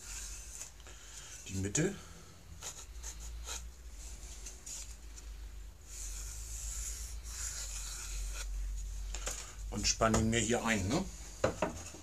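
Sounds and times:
pencil scratching on wood: 2.6s - 3.7s, 5.9s - 8.6s.

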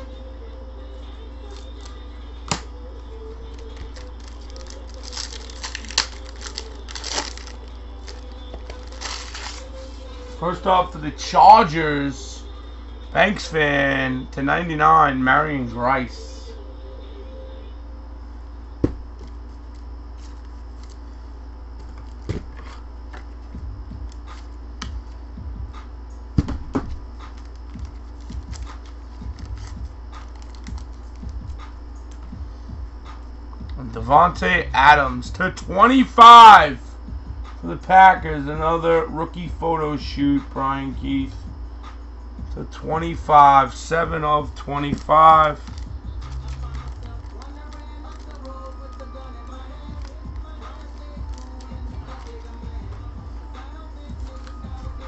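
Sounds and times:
cards clicking and rustling: 3.4s - 10.0s, 19.2s - 21.1s, 24.0s - 25.2s, 27.3s - 31.4s, 44.7s - 52.6s, 54.2s - 54.7s
foil wrapper crinkling and tearing: 3.4s - 10.4s, 27.3s - 31.3s, 44.8s - 52.7s.

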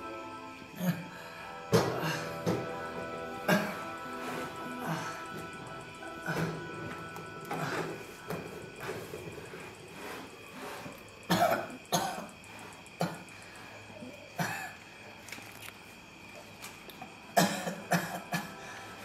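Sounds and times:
man coughing: 3.4s - 3.9s, 11.3s - 12.3s, 17.4s - 18.6s.

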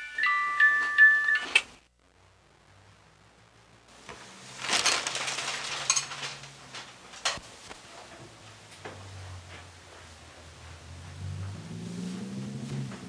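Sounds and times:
newspaper rustling and crinkling: 4.0s - 8.7s.

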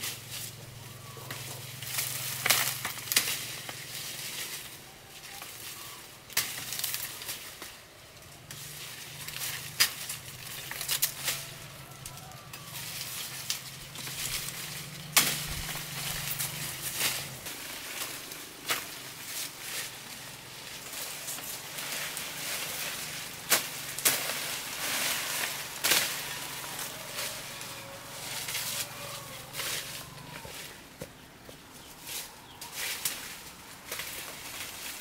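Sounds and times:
leaves rustling: 0.0s - 35.0s
knife cutting grass stalks: 8.5s - 30.6s.

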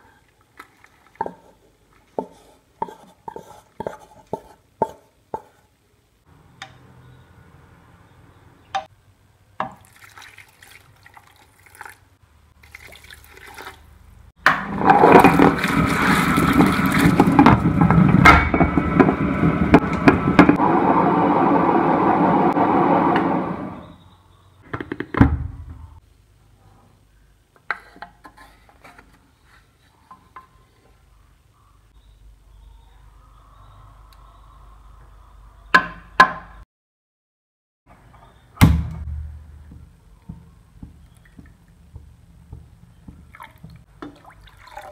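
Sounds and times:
mixer grinder running: 14.7s - 23.8s.

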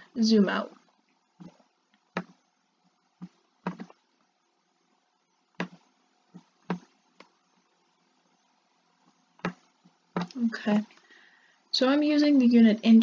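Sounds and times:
computer mouse clicking: 3.2s - 4.0s, 5.6s - 5.8s, 6.4s - 7.4s, 9.4s - 10.4s.

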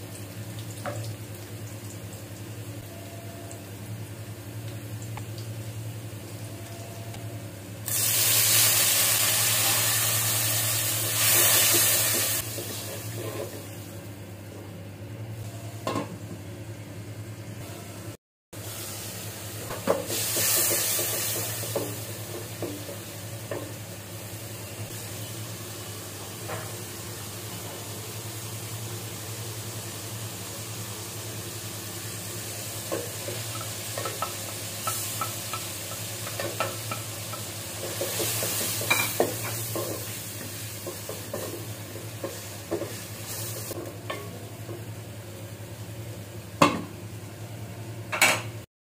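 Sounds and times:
food sizzling in hot oil: 7.8s - 13.8s, 18.6s - 43.8s
spoon knocking on pan: 32.9s - 37.5s.

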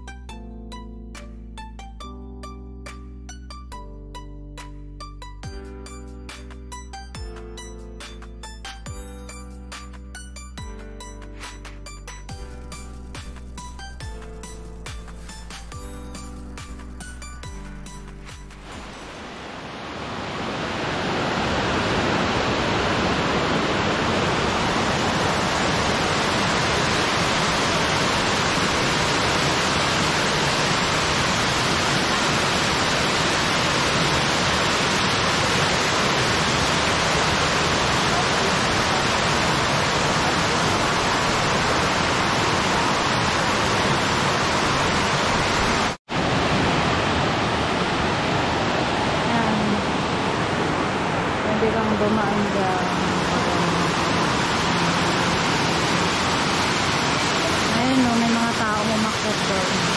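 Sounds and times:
waterfall rushing into a pool: 18.6s - 59.9s.

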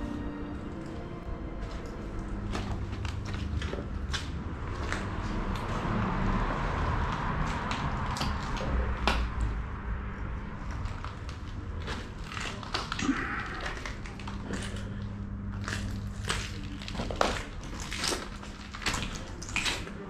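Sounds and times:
footsteps crunching over rubble and glass: 0.0s - 5.7s, 13.6s - 20.0s
steady low hum: 0.0s - 20.0s.

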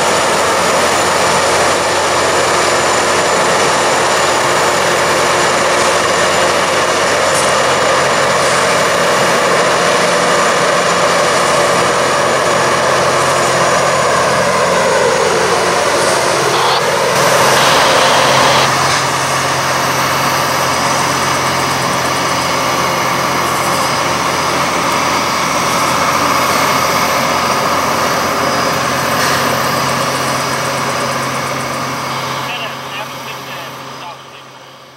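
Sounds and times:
rail grinding rushing noise: 0.0s - 34.9s
low machine hum: 14.4s - 20.2s.

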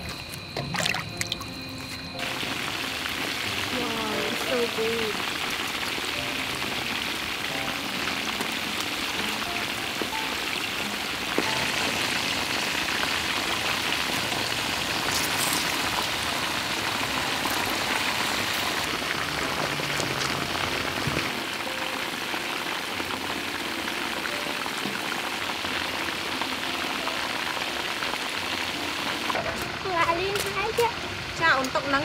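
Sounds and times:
chicken sizzling in hot oil: 0.0s - 32.0s.

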